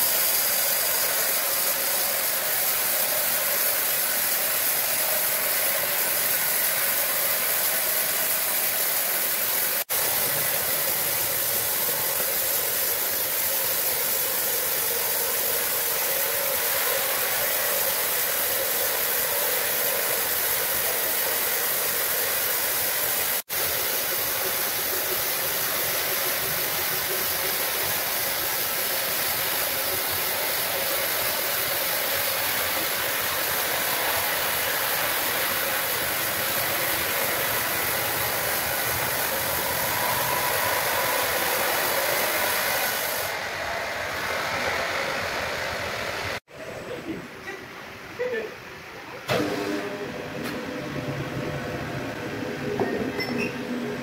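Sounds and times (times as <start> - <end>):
sawmill machinery hissing: 0.0 - 46.9.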